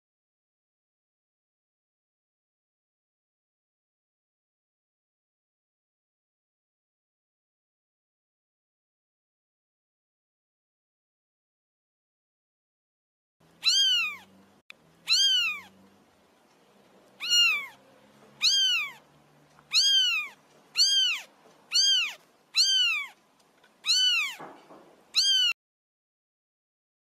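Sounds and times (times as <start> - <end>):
cat meowing: 13.6 - 14.3, 15.0 - 15.8, 17.2 - 23.2, 23.8 - 25.6.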